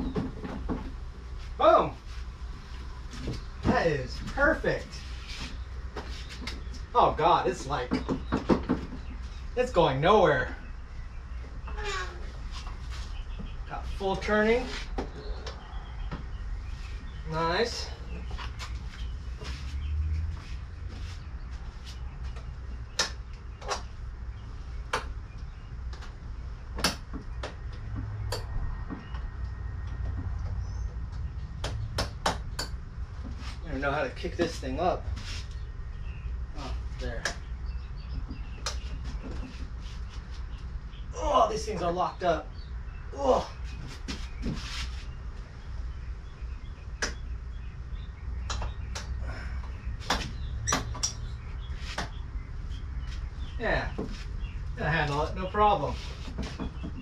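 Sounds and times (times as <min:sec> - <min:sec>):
steady low rumble: 0:12.3 - 0:41.2.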